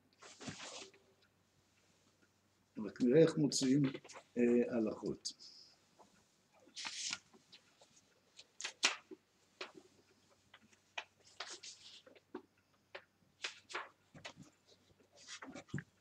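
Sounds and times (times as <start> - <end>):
book pages turning: 0.2 - 1.0, 6.6 - 7.8, 8.4 - 9.8, 10.5 - 16.0.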